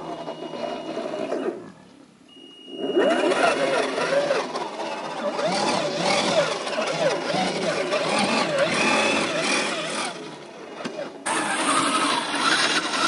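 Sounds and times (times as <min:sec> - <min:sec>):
electric motor whining: 0:02.8 - 0:13.0
tyres scrabbling on dirt: 0:03.1 - 0:13.0.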